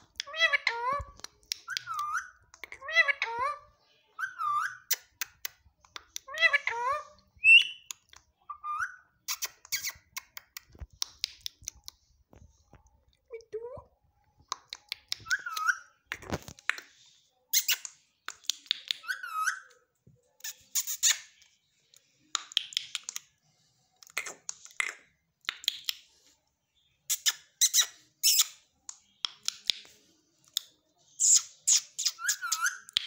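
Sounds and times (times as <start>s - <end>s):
parakeet squeaking and clicking: 0.0s - 3.6s, 4.2s - 12.1s, 14.4s - 23.4s, 24.0s - 26.1s, 27.1s - 33.0s
parakeet chirps: 0.2s - 5.5s, 6.1s - 10.6s, 14.8s - 16.4s, 20.4s - 21.5s, 27.0s - 28.7s, 31.1s - 33.0s.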